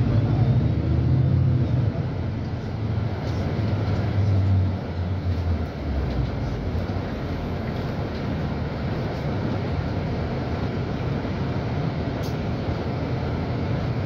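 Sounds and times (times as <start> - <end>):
bus diesel engine humming: 0.0 - 14.0
road and body rumble: 0.0 - 14.0.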